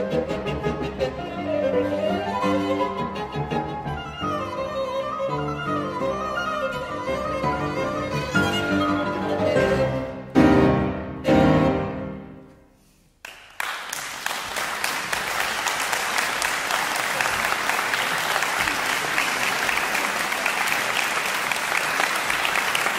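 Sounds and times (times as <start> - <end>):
violin and piano chords: 0.0 - 12.4
audience applause: 13.2 - 22.9.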